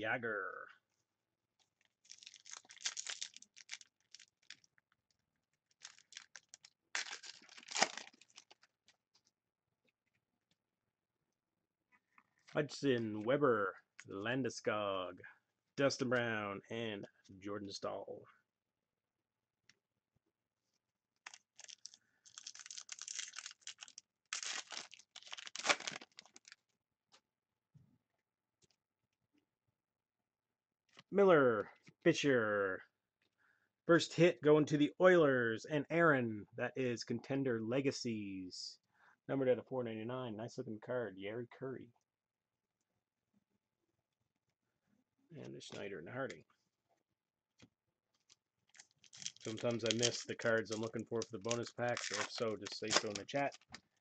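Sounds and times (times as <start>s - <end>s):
wrapper tearing and crumpling: 2.0s - 4.7s, 5.7s - 8.7s, 21.2s - 26.6s, 48.7s - 53.7s
cards clicking and flicking: 49.5s - 53.4s.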